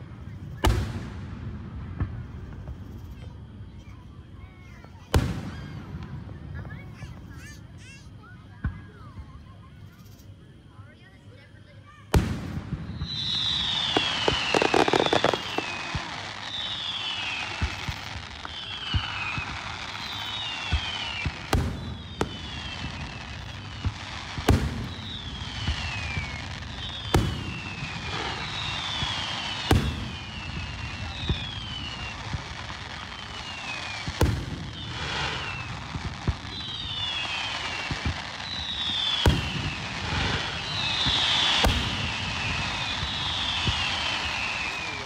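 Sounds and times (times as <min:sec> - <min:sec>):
distant firework booms: 0:12.1 - 0:45.0
steady hiss: 0:12.2 - 0:45.0.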